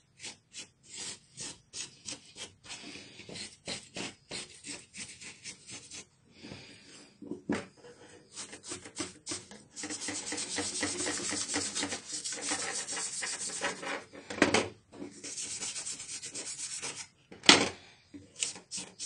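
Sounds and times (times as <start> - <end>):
paintbrush scrubbing circuit board: 8.3 - 14.0, 15.1 - 17.1, 18.4 - 19.0.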